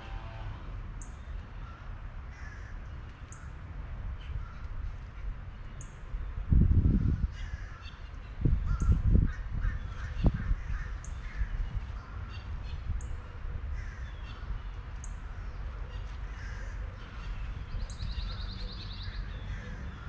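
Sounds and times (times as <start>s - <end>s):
low rumbling on microphone: 0.0s - 3.1s, 3.8s - 20.0s
harsh bird calls: 13.8s - 20.0s.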